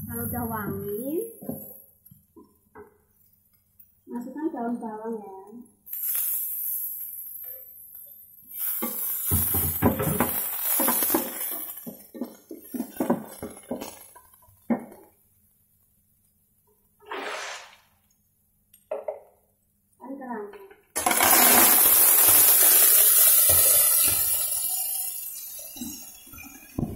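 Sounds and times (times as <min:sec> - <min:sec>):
scrape on wooden cutting board: 0:17.0 - 0:17.8.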